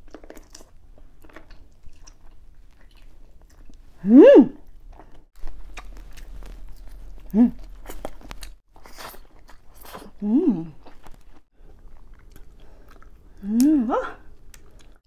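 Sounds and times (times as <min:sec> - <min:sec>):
wet chewing and lip smacks: 0:00.0 - 0:03.9, 0:04.6 - 0:10.2, 0:10.8 - 0:13.5, 0:14.3 - 0:15.0
person humming mmm: 0:04.0 - 0:04.6, 0:07.2 - 0:07.7, 0:10.1 - 0:10.8, 0:13.4 - 0:14.3.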